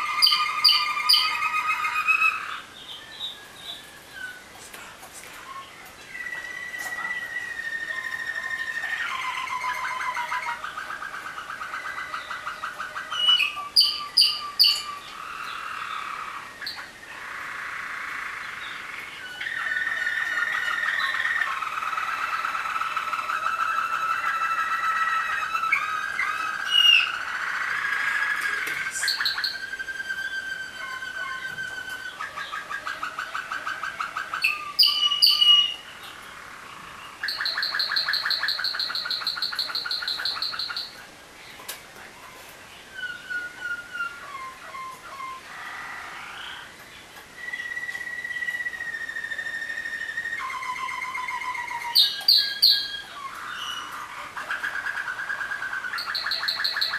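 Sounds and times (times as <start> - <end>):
clear whistled bird notes: 0.0 - 4.5, 5.4 - 16.8, 18.6 - 35.9, 47.3 - 56.9
canaries singing: 0.0 - 56.9.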